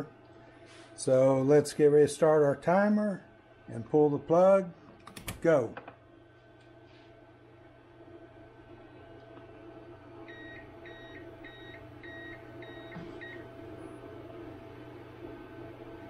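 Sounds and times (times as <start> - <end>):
hum of running printers: 9.0 - 16.0
ups warning beeps: 10.3 - 13.4.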